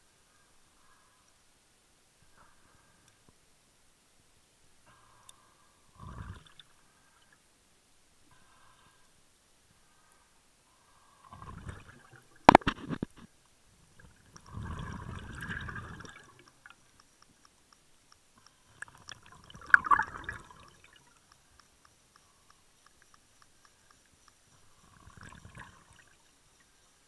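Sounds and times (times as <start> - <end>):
exhaled bubbles rushing: 11.3 - 12.4, 14.0 - 16.4, 19.1 - 21.0
sharp clicks: 16.1 - 19.2, 20.8 - 24.9.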